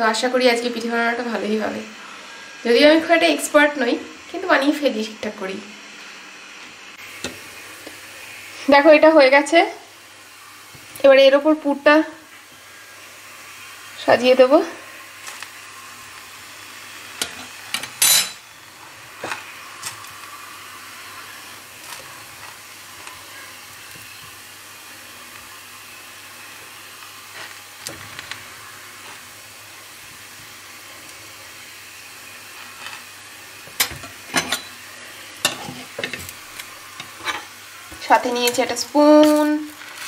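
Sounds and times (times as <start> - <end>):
crepe sizzling in a frying pan: 0.0 - 40.0
metal spatula scraping pan: 37.0 - 37.5.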